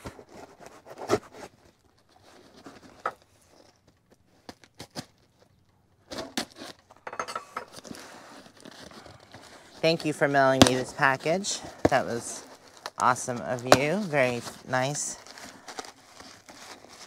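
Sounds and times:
cardboard and tape pulled apart: 0.0 - 7.0, 7.7 - 17.0
knife cutting packing tape: 6.1 - 6.9, 10.6 - 17.0.

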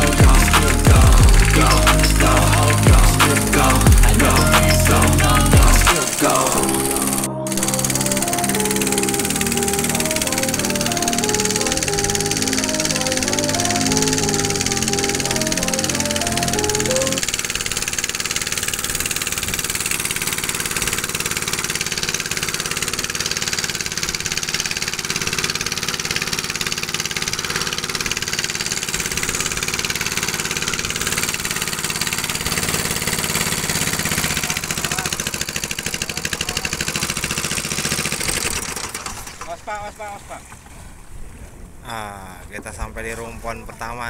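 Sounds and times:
boat engine running: 0.0 - 44.0
water splashing along hull: 0.0 - 44.0.

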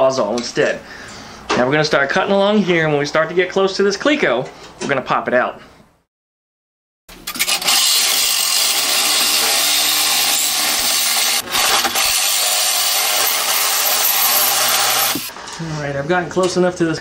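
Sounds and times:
reciprocating saw cutting sheet metal: 7.2 - 15.3.

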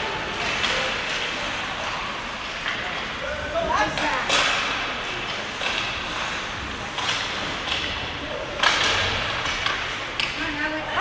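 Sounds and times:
hockey stick hitting puck: 3.9 - 10.5.

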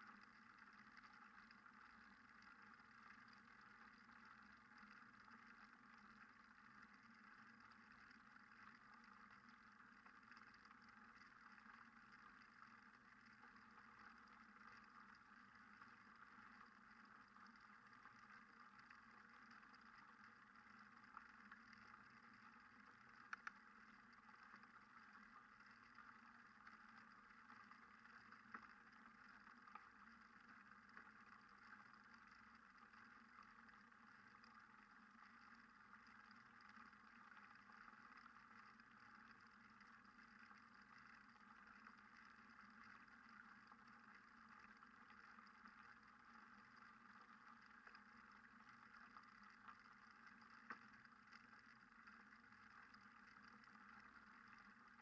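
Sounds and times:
faint steady hiss: 0.0 - 55.0
tiny clicks: 23.1 - 24.6.

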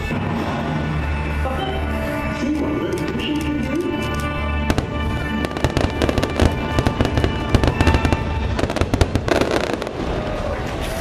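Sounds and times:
fireworks show music: 0.0 - 11.0
fireworks bursts and crackling: 3.0 - 11.0.

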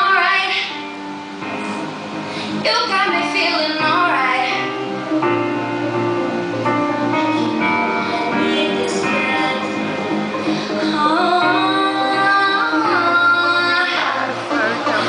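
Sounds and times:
woman singing into a microphone: 0.0 - 0.8, 2.4 - 4.8, 6.9 - 15.0
backing music: 0.0 - 15.0.

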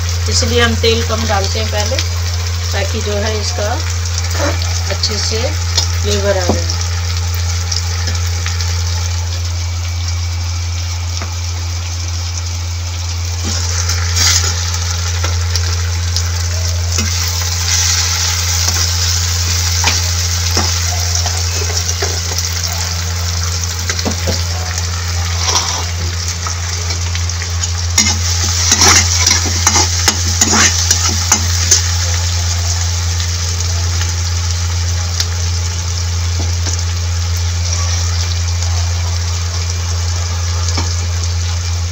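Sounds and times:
steady low hum: 0.0 - 41.9
vegetables sizzling in a pan: 0.0 - 41.9
spatula scraping a pan: 25.2 - 26.1, 28.0 - 31.8.

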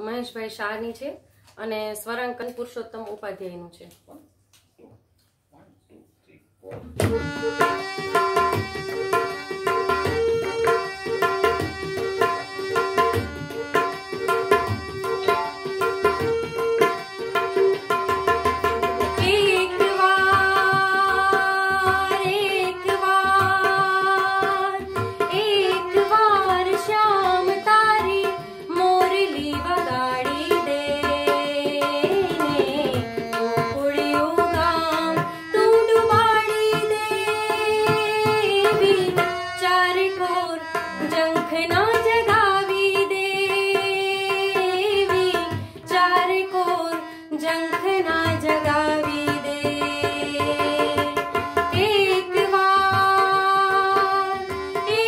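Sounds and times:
tabla rhythm: 6.6 - 55.0
woman singing: 19.0 - 55.0.

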